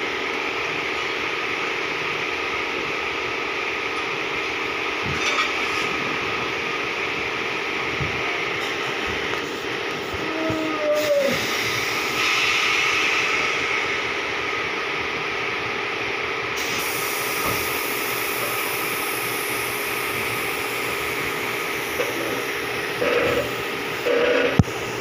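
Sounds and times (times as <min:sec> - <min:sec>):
hiss of workshop machinery: 0:08.6 - 0:14.7, 0:16.5 - 0:25.0.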